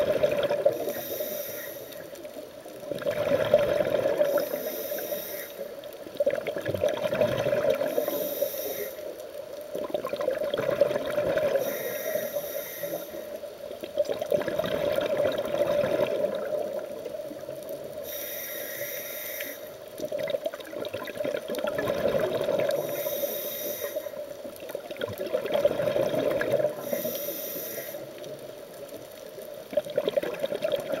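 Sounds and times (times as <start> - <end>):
exhaled bubbles rushing: 0.0 - 0.8, 2.9 - 4.4, 6.2 - 8.0, 9.8 - 11.6, 13.9 - 17.0, 20.0 - 22.9, 24.8 - 27.0, 29.7 - 31.0
hissing regulator inhales: 0.7 - 2.2, 4.2 - 5.8, 7.9 - 9.2, 11.5 - 13.4, 18.0 - 19.8, 22.8 - 24.2, 26.8 - 28.2.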